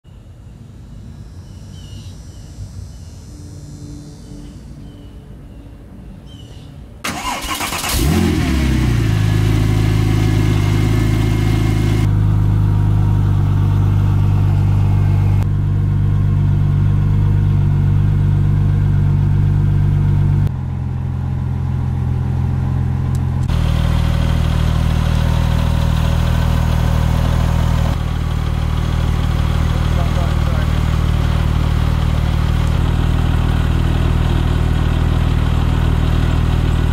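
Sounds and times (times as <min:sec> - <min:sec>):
engine starter cranking: 0:07.0 - 0:08.5
car engine idling: 0:07.0 - 0:36.9.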